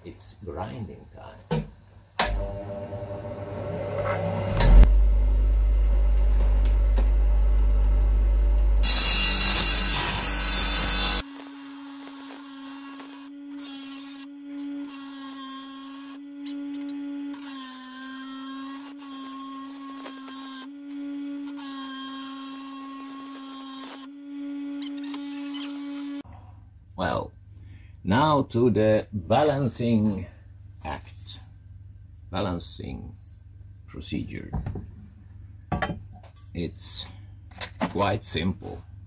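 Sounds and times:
bench grinder humming: 2.3 - 26.2
steel blade grinding on stone: 8.8 - 11.2, 11.9 - 20.7.

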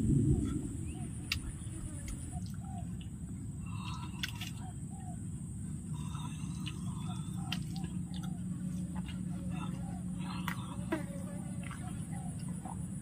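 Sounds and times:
low rushing noise: 0.0 - 2.5
high insect drone: 0.0 - 13.0
bird calling softly: 0.4 - 13.0.

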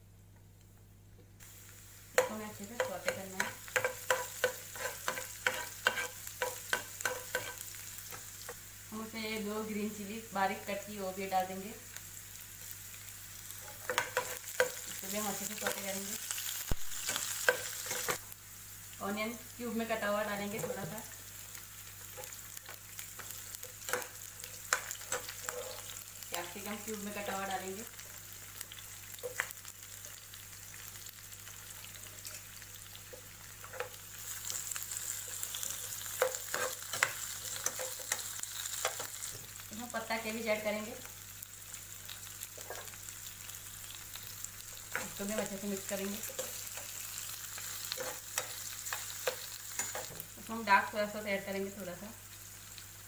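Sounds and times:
vegetables sizzling in hot oil: 1.4 - 53.0
spatula scraping and knocking pan: 2.2 - 8.2, 23.2 - 25.9, 35.6 - 39.1.

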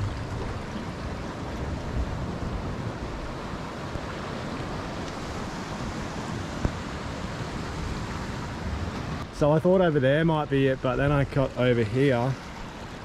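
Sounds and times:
wind buffeting microphone: 0.0 - 9.3
surf washing against rocks: 0.0 - 13.0.

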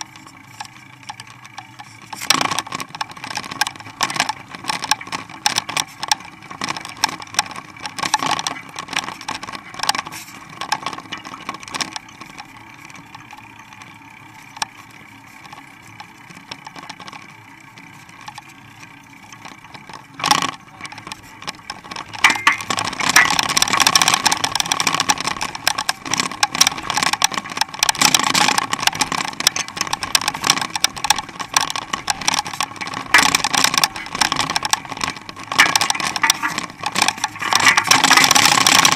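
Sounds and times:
bike rattling and knocking: 0.0 - 38.9
tyre and wind noise: 19.6 - 38.9.

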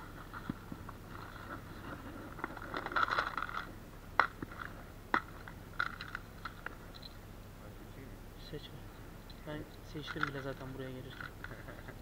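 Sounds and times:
plastic clicks and rattles: 2.4 - 7.1, 10.0 - 11.9.

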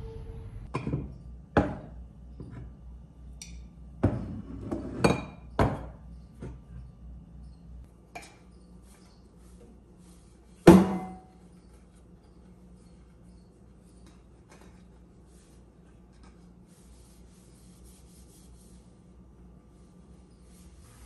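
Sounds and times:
dishes clinking on countertop: 3.4 - 6.0.

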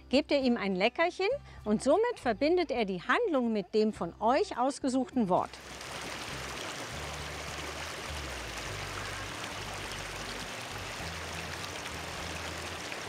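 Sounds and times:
stream running over gravel: 5.5 - 13.0.

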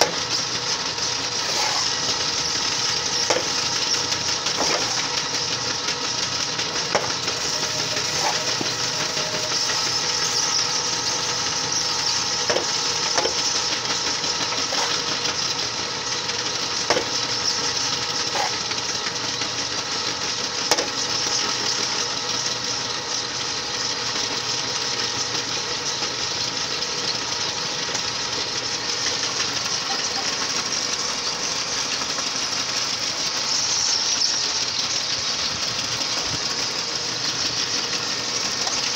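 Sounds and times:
soil mixing machine running: 0.0 - 38.9
sharp knocks: 3.3 - 3.6.

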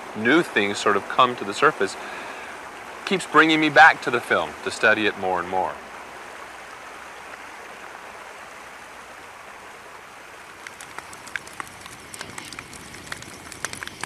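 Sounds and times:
creek running: 0.0 - 14.0
wood fire crackling and popping: 10.6 - 14.0.

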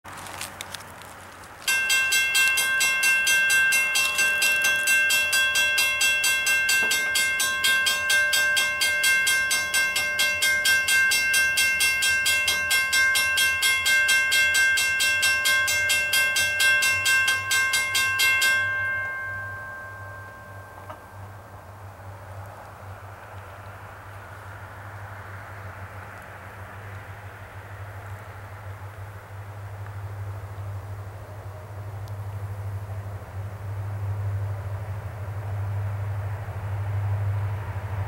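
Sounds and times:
low rumble of train: 0.1 - 38.0
railway bell ringing rapidly: 1.7 - 21.6.

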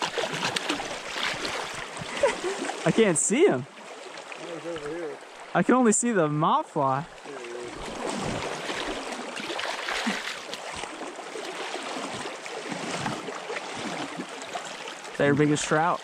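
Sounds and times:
stream water flowing: 0.0 - 16.0.

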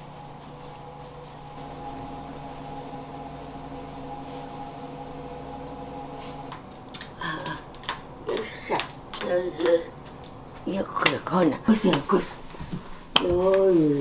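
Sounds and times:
low rushing noise: 0.0 - 8.3
steady mechanical hum: 0.0 - 14.0.

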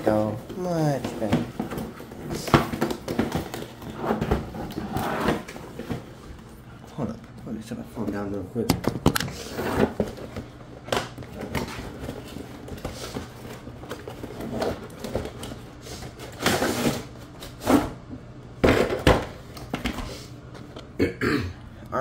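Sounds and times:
steady low hum: 0.0 - 22.0
packaging and plastic rustling: 8.0 - 18.0.

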